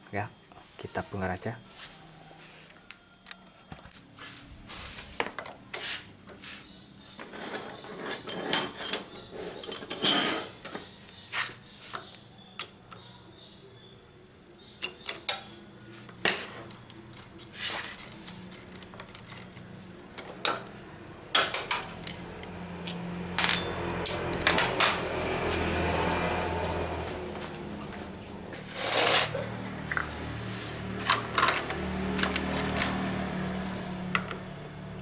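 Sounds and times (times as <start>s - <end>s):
metal tools clinking and knocking: 7.2s - 10.9s, 16.3s - 20.7s, 21.3s - 25.2s, 31.0s - 33.0s
sharp metallic rings: 22.8s - 25.2s.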